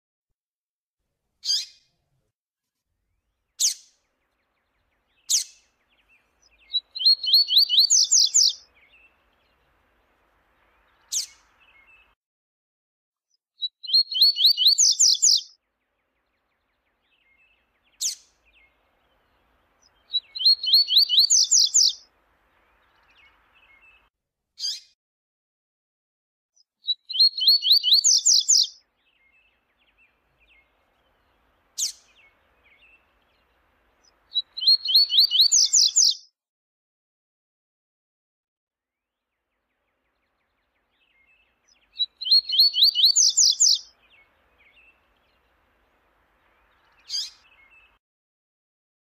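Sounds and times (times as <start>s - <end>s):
bird warbling song: 1.4s - 1.8s, 3.5s - 12.2s, 13.6s - 24.9s, 26.8s - 36.3s, 39.3s - 48.0s.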